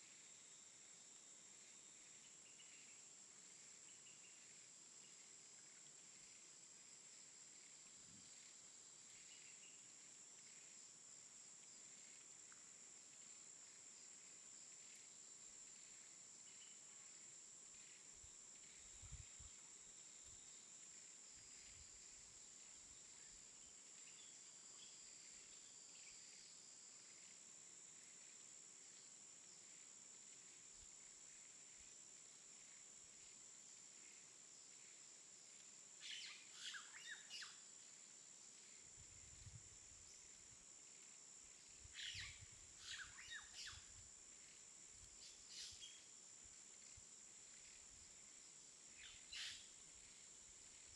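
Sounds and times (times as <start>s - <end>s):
low hiss: 0.0s - 50.9s
faint chirps: 36.0s - 50.9s.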